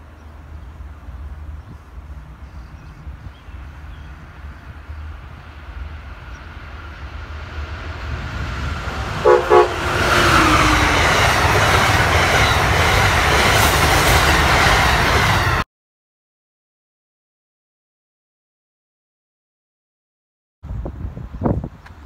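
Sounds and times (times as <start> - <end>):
train rushing past on rails: 0.0 - 15.6
train horn blasts: 9.2 - 11.1.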